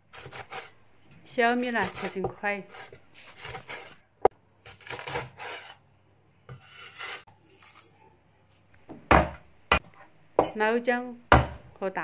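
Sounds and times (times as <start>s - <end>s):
cleaver scraping cutting board: 0.1s - 0.7s, 1.5s - 4.0s, 4.6s - 5.8s, 6.5s - 7.3s.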